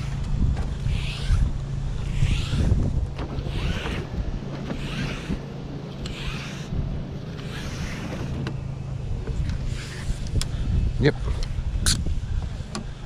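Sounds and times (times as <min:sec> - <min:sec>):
wind buffeting microphone: 0:00.0 - 0:13.0
regular hissing swish: 0:00.8 - 0:10.9.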